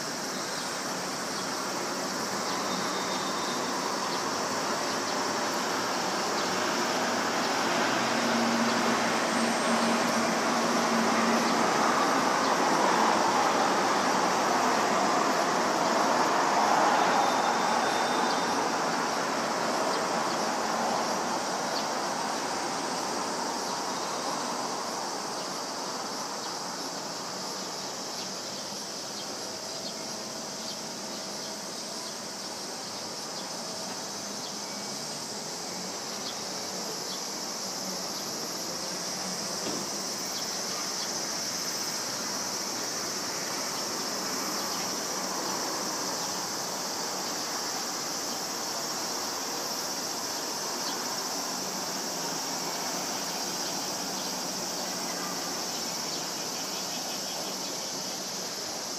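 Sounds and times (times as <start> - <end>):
broad distant rush: 0.0 - 58.9
insects droning: 0.0 - 58.9.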